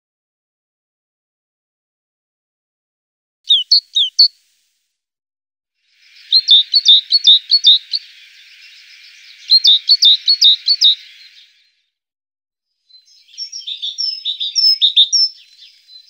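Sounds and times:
birds chirping: 0:03.5 - 0:04.3, 0:05.9 - 0:11.8, 0:12.9 - 0:16.0.

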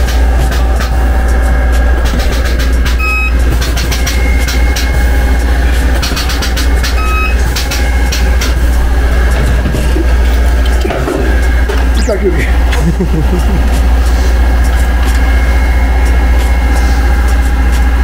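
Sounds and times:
short high beeps: 0:03.0 - 0:03.4, 0:07.0 - 0:07.4.

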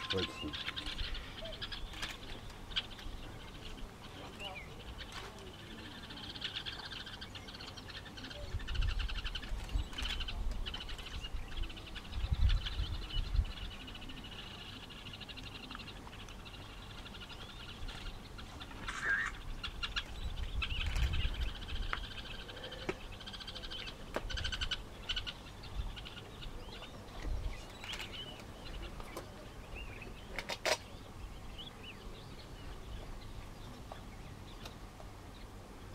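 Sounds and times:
birds chirping and trilling: 0:00.0 - 0:35.9
low rumbling gusts: 0:19.4 - 0:22.1.

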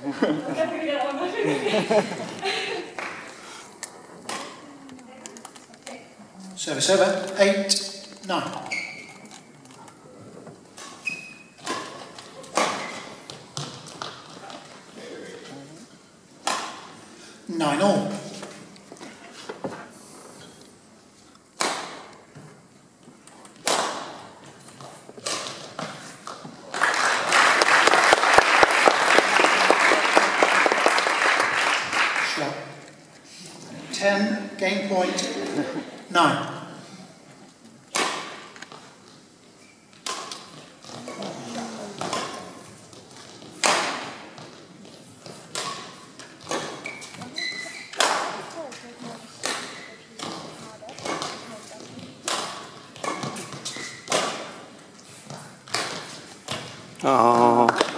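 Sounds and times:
shoe squeaks on court floor: 0:08.6 - 0:09.5, 0:10.8 - 0:11.8, 0:46.6 - 0:48.0, 0:53.0 - 0:54.1
racket striking shuttlecock: 0:11.6 - 0:14.1, 0:16.4 - 0:16.9, 0:21.6 - 0:22.1, 0:23.6 - 0:24.2, 0:37.9 - 0:38.7, 0:42.0 - 0:42.6, 0:43.4 - 0:44.2, 0:45.5 - 0:46.8, 0:49.4 - 0:51.5, 0:52.2 - 0:54.6, 0:55.3 - 0:56.7
audience applause: 0:26.7 - 0:32.5.

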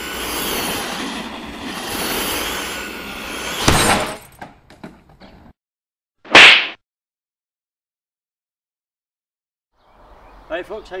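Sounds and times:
glass breaking: 0:03.6 - 0:04.4.

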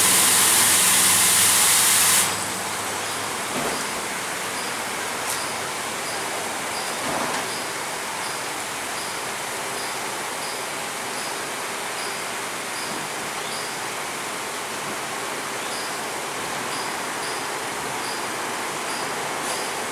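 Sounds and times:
car wash brushes and water spray: 0:00.0 - 0:08.2.

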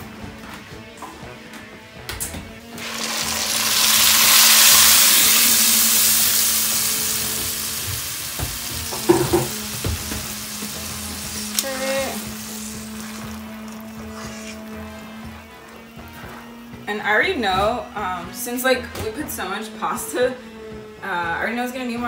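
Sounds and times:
liquid sizzling in hot oil: 0:02.8 - 0:15.3.

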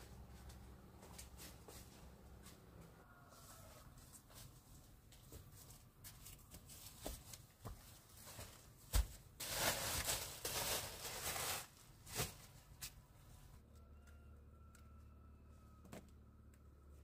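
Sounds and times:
rustling: 0:05.5 - 0:13.0.

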